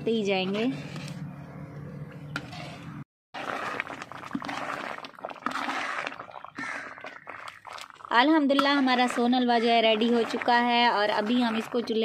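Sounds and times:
spoon stirring and scraping: 2.4s - 12.0s
thick mixture bubbling: 3.3s - 12.0s.

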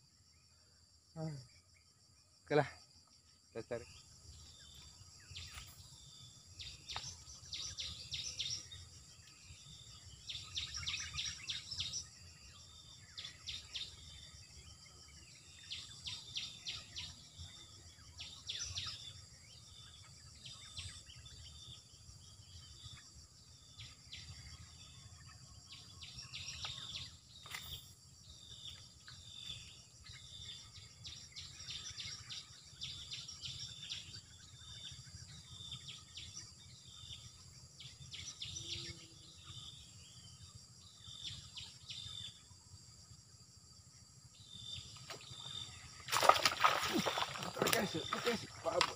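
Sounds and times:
insects droning: 0.0s - 48.9s
birds chirping: 44.4s - 48.9s.

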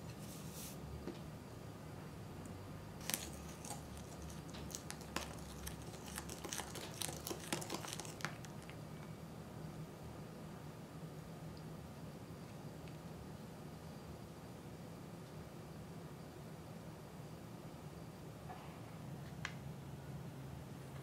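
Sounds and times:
spoon stirring in glass bowl: 3.0s - 8.8s.

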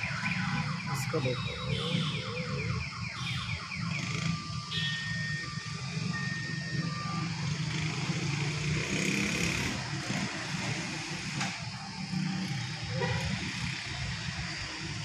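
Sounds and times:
car alarm: 0.0s - 10.8s
low rumble of engines: 0.0s - 15.0s.

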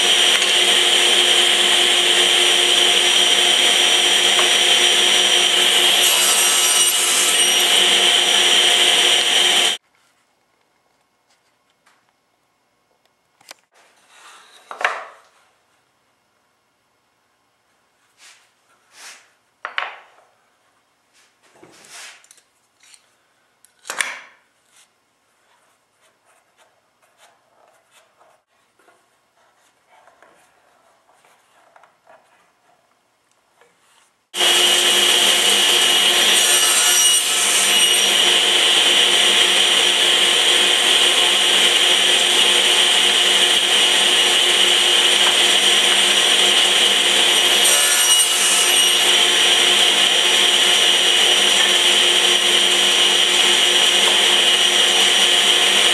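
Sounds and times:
table saw whine: 0.0s - 9.8s, 34.4s - 55.9s.

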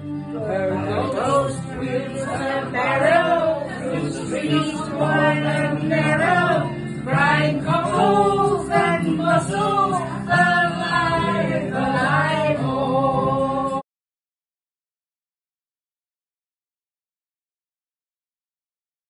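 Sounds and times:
group of voices singing: 0.4s - 13.8s.

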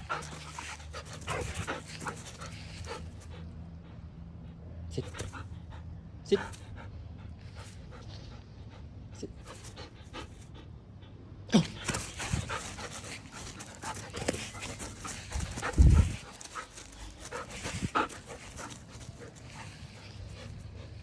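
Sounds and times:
dog panting: 0.0s - 11.2s, 11.8s - 21.0s
rustling of running on grass: 11.8s - 20.3s.

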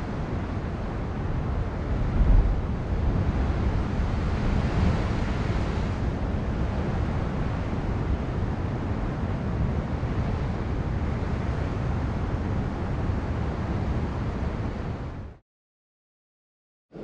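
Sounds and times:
wind buffeting microphone: 0.0s - 15.4s
ocean surf washing on rocks: 0.2s - 10.9s.

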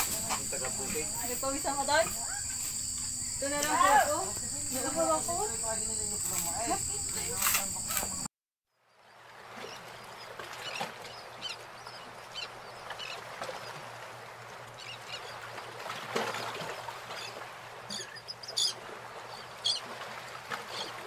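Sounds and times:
rural background noise: 0.0s - 8.3s.

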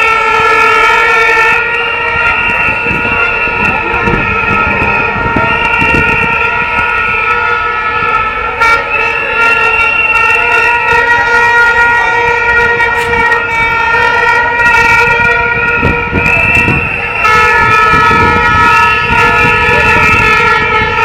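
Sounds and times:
horns blowing held tone: 0.0s - 21.0s
street crowd noise: 0.0s - 21.0s.

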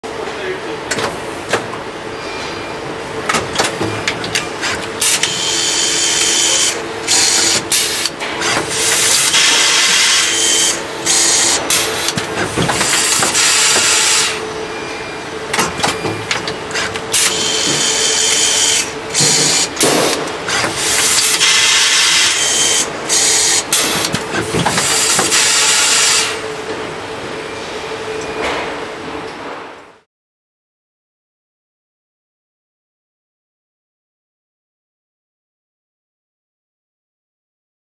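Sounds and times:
steady machine hum: 0.1s - 30.0s
pneumatic hissing: 4.6s - 14.4s, 15.5s - 26.4s.

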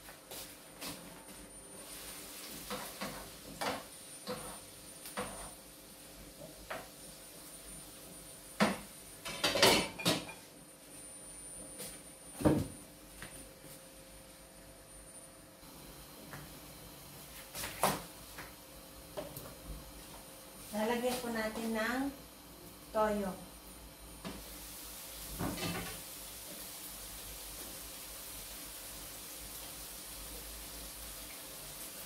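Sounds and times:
pots and pans clattering: 8.6s - 10.4s, 25.4s - 26.0s.

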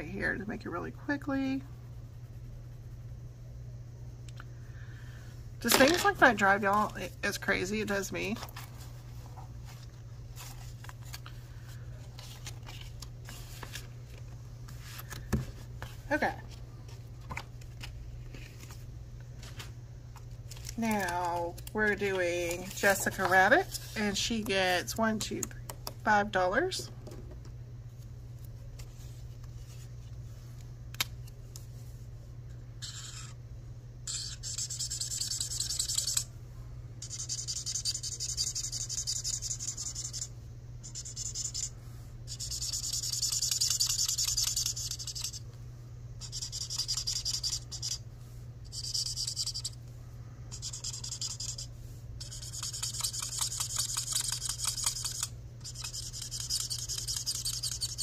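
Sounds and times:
marker scratching on paper: 32.8s - 33.4s, 34.1s - 36.2s, 37.0s - 40.3s, 42.3s - 45.4s, 46.2s - 48.0s, 50.5s - 58.0s.

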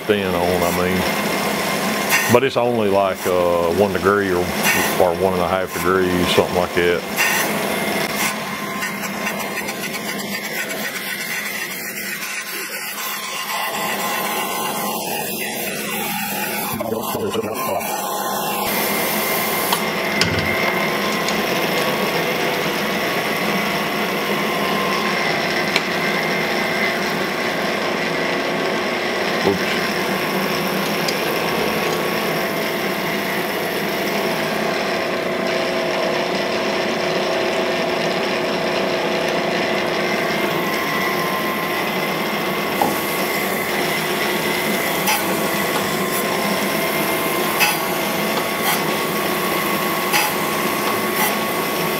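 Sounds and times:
machine hum: 0.0s - 51.9s
grinding wheel hiss: 0.4s - 27.4s, 40.3s - 51.9s.

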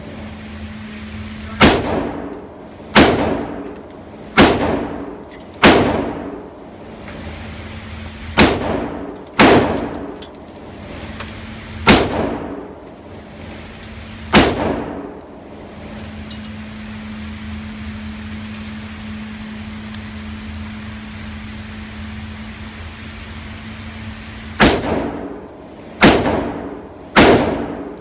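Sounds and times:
steady low hum: 0.0s - 28.0s
rifle shots echoing indoors: 1.6s - 2.3s, 2.9s - 3.6s, 4.3s - 6.3s, 8.3s - 10.2s, 11.8s - 12.7s, 14.3s - 15.2s, 24.6s - 28.0s.

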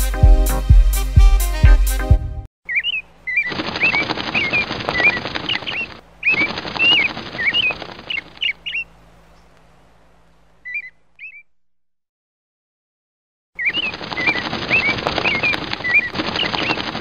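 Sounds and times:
short bird chirps: 2.7s - 9.5s, 10.6s - 11.6s, 13.6s - 17.0s
rapid wing flapping: 3.3s - 9.5s, 13.6s - 17.0s.

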